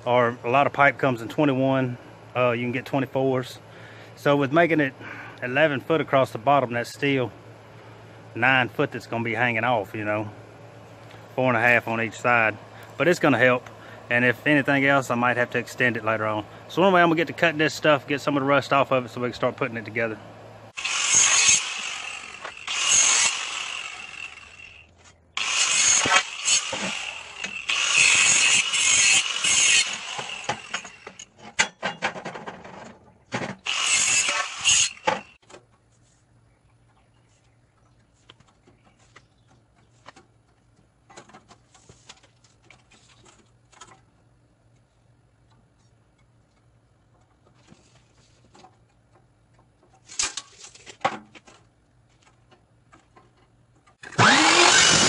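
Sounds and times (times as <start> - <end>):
angle grinder grinding steel: 20.7 - 31.4, 33.6 - 35.4, 54.0 - 55.0
chop saw starting: 20.8 - 31.3, 33.5 - 35.4, 54.0 - 55.0.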